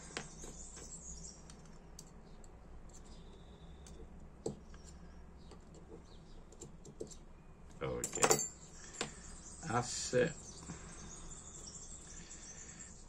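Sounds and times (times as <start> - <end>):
faint clicks of small metal parts: 0.1 - 9.2.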